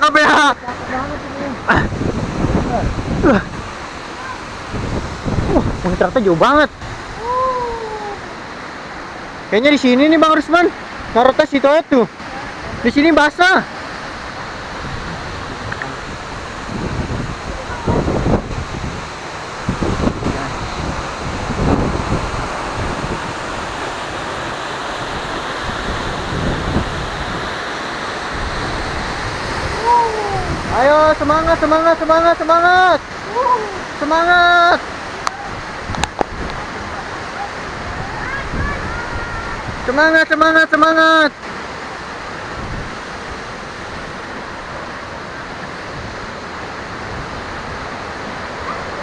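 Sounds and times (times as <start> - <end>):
waterfall rushing: 0.0 - 49.0
wind rumbling on microphone: 0.8 - 9.0, 13.9 - 32.3, 34.9 - 39.9, 42.1 - 49.0.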